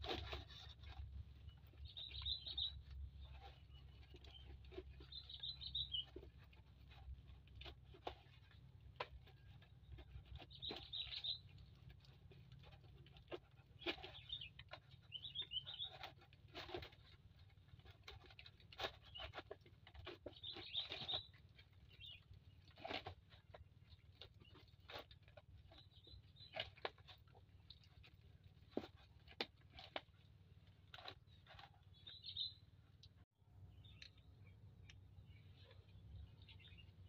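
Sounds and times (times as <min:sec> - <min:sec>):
bird chirps: 0:00.2 - 0:06.9, 0:09.3 - 0:11.8, 0:13.8 - 0:16.9, 0:20.0 - 0:23.0, 0:31.3 - 0:32.8, 0:33.6 - 0:37.0.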